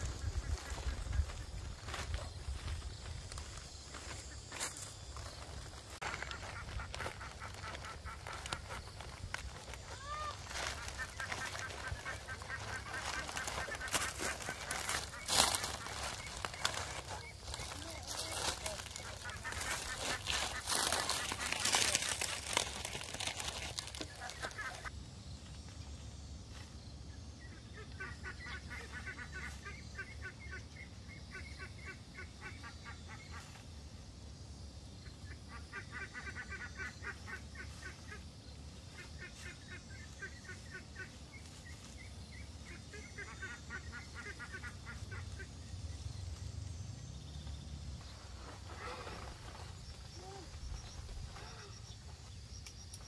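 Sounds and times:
poultry calling: 6.0 - 24.9, 27.4 - 33.6, 35.2 - 38.3, 38.9 - 45.7.

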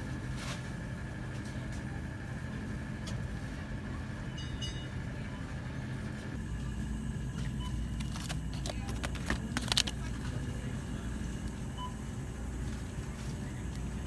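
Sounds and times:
low hum of store ambience: 0.0 - 14.0
plastic packages clicking and rattling: 7.9 - 10.3.

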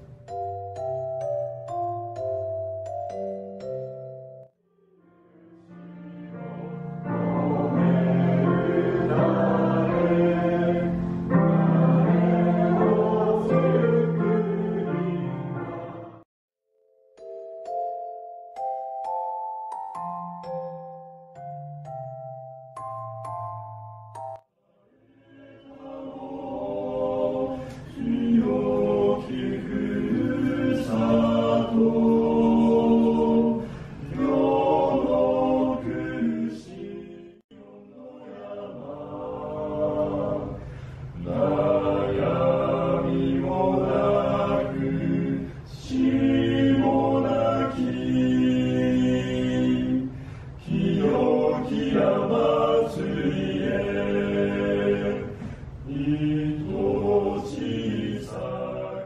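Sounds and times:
men singing a hymn in harmony: 6.4 - 16.2, 25.2 - 59.0.

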